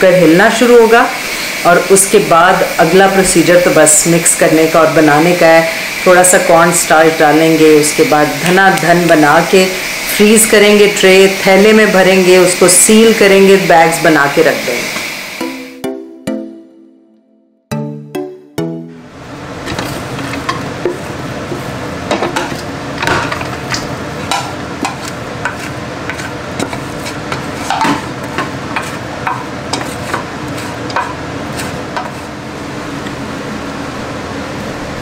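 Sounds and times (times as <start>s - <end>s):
food sizzling in a pot: 0.1s - 15.8s, 19.2s - 32.7s
spoon scraping a pot: 24.3s - 32.3s.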